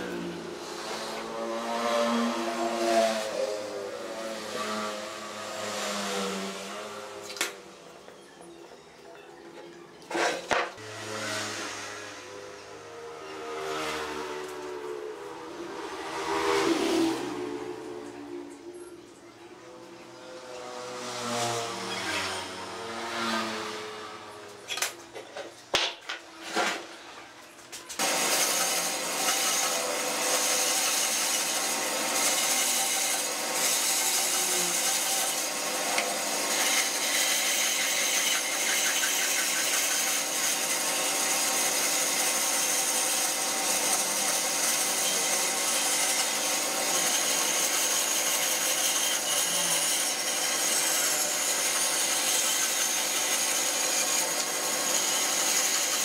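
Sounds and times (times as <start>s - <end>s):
bandsaw cutting wood: 0.0s - 7.7s, 10.1s - 15.0s, 28.0s - 56.0s.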